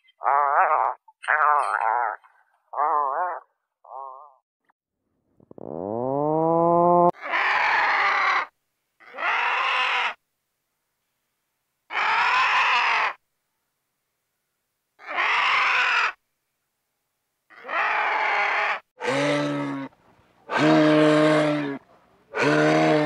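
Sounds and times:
hoarse vulture calls: 0:07.2 - 0:10.2, 0:11.9 - 0:13.2, 0:15.0 - 0:16.2, 0:17.5 - 0:23.0.

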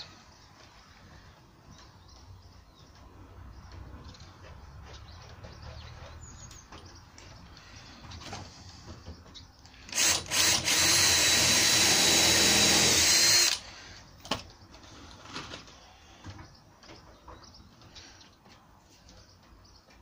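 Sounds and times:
cordless drill drilling into plywood: 0:09.9 - 0:13.6.

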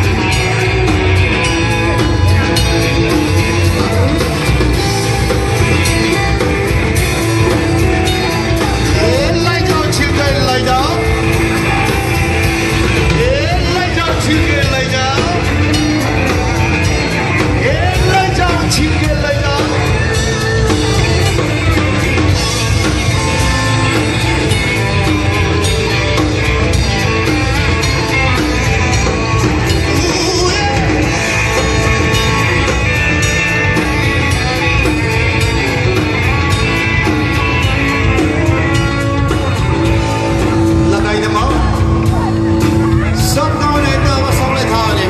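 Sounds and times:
live rock band playing: 0:00.0 - 0:45.0
person singing: 0:08.6 - 0:22.6, 0:29.6 - 0:32.9.

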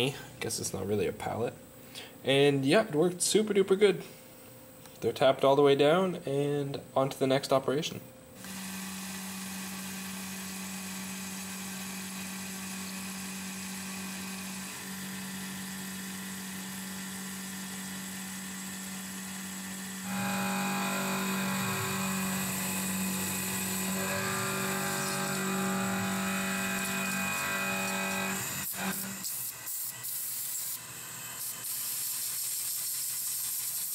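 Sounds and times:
milling machine spindle whine: 0:08.4 - 0:31.7.

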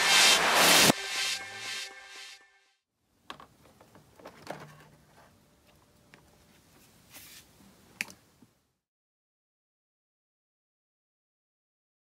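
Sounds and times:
electronic music: 0:00.0 - 0:02.6.

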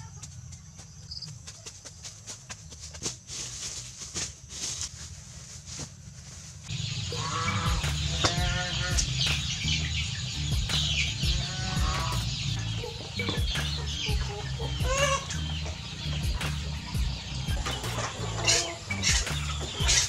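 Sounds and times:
chickens clucking: 0:06.7 - 0:20.0.

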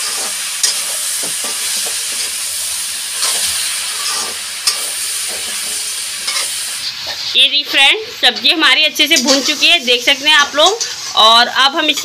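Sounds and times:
spatula scraping a pan: 0:00.0 - 0:07.4, 0:09.0 - 0:11.3
vegetables sizzling in a pan: 0:00.0 - 0:12.0.

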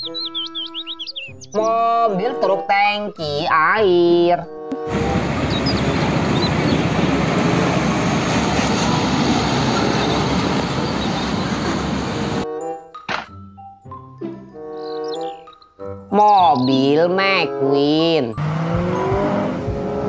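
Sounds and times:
organ-like held notes: 0:03.8 - 0:07.6, 0:14.5 - 0:20.0
trucks driving by: 0:04.8 - 0:12.5, 0:18.3 - 0:20.0
sharp knock: 0:13.1 - 0:13.4.

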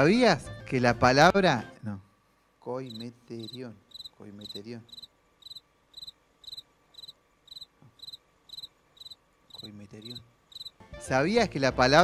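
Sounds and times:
crickets chirping: 0:02.8 - 0:10.8.

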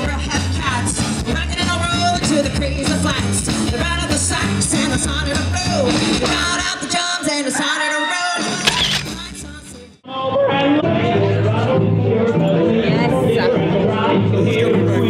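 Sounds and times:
upright double bass: 0:00.0 - 0:06.6, 0:10.8 - 0:15.0
woman singing: 0:00.0 - 0:10.0, 0:12.3 - 0:14.0.

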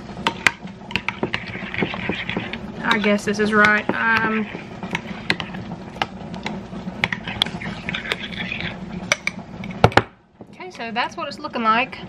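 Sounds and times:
steady low hum: 0:00.0 - 0:12.0
spoon scraping glass bowl: 0:00.9 - 0:05.7, 0:07.0 - 0:09.8.

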